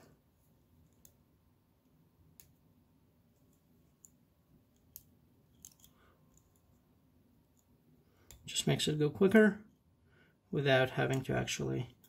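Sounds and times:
faint cable wire clicks: 2.3 - 2.6.

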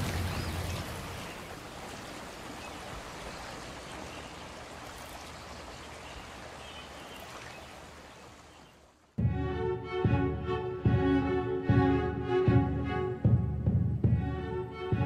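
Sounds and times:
rain falling: 0.0 - 9.1
running water: 0.0 - 9.2.

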